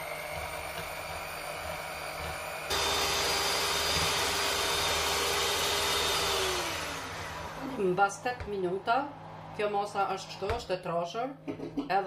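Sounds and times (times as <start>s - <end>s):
electric hand mixer whining: 0.0s - 8.0s.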